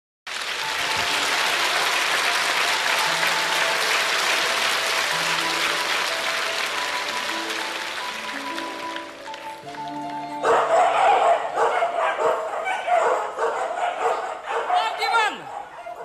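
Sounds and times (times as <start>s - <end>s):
audience applauding: 0.3s - 12.4s
music of held notes: 0.4s - 12.0s.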